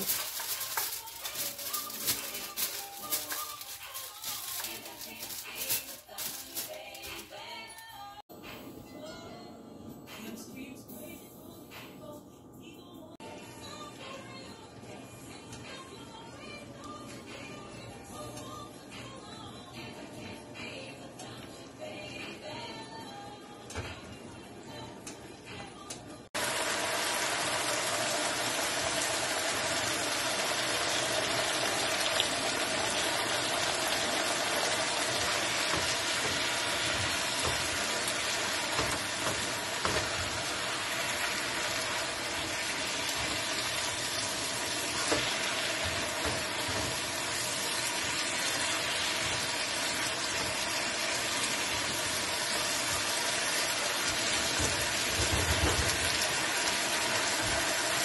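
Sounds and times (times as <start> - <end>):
food sizzling in a skillet: 0.0 - 7.3, 26.4 - 58.0.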